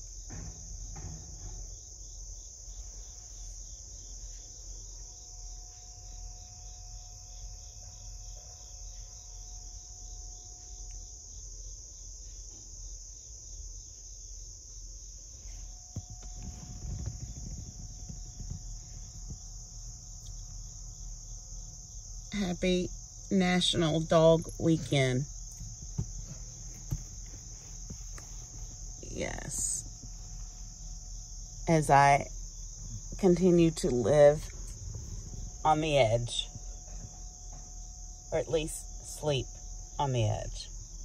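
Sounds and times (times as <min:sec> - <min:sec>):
insects chorus: 0:00.0 - 0:41.0
soft low rustling: 0:15.3 - 0:21.7, 0:24.5 - 0:31.6, 0:32.4 - 0:38.0.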